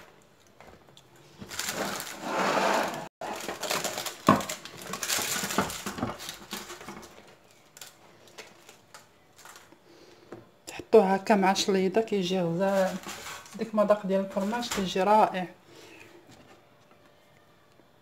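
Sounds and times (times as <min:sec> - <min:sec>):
parchment rustling: 0:00.9 - 0:09.8, 0:12.2 - 0:15.2.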